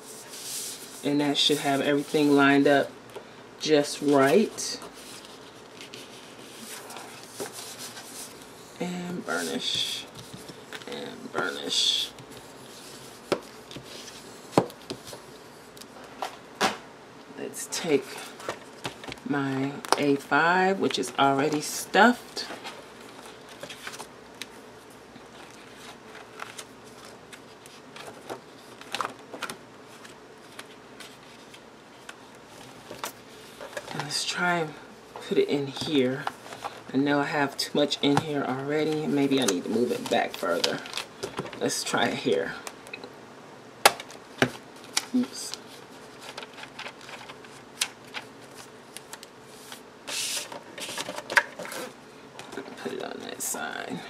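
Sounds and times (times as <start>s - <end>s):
paper pages rustling: 3.8s - 8.5s, 9.1s - 16.4s, 20.8s - 24.6s, 25.2s - 34.3s, 37.8s - 42.7s, 44.0s - 53.4s.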